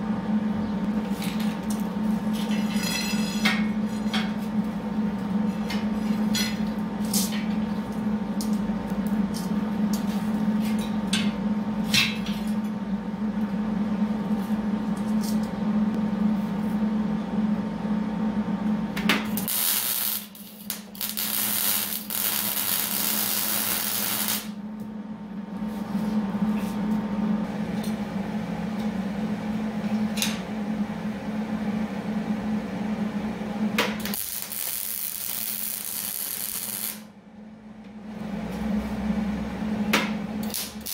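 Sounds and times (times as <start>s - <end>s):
electrical hum: 0.0s - 40.9s
arc welding crackling hiss: 19.4s - 24.6s, 34.0s - 37.1s, 40.4s - 40.9s.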